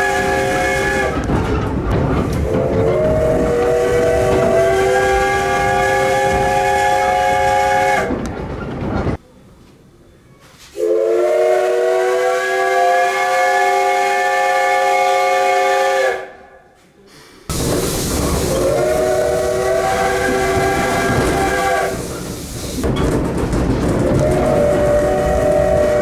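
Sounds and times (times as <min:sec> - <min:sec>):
steam whistle chime blasts: 0:10.8 - 0:16.2, 0:18.6 - 0:22.0
loud rushing steam hiss: 0:17.0 - 0:23.3.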